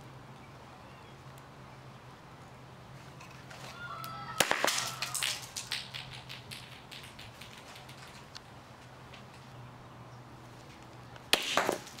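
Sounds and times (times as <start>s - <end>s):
firecracker crack and crackling: 4.3s - 8.4s, 11.3s - 12.0s.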